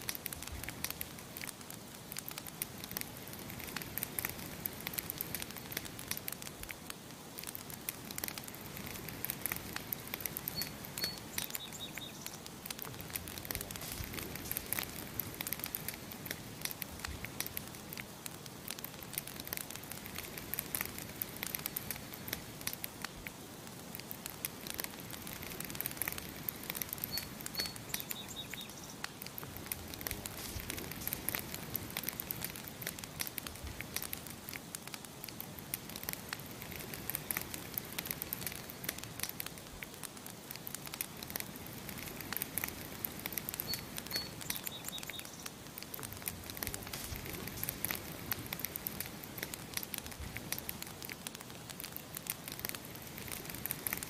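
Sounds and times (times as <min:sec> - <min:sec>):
campfire crackling and popping: 0:00.0 - 0:54.0
small bird chirping: 0:10.3 - 0:12.4, 0:26.8 - 0:29.2, 0:43.6 - 0:45.6.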